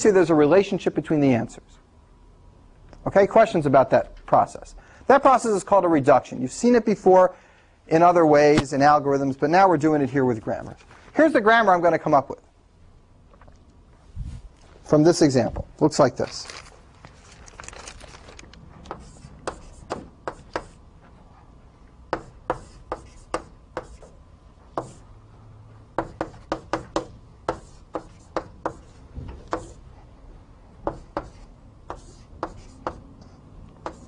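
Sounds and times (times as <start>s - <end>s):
chalk tapping on blackboard: 18.9s - 20.8s, 22.1s - 25.0s, 26.0s - 28.9s, 29.5s - 29.8s, 30.8s - 33.0s.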